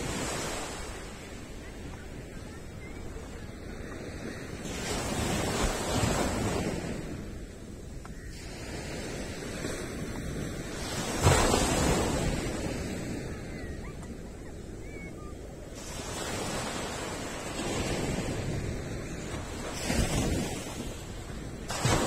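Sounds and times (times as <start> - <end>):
small waves breaking on sand: 0.0 - 22.0.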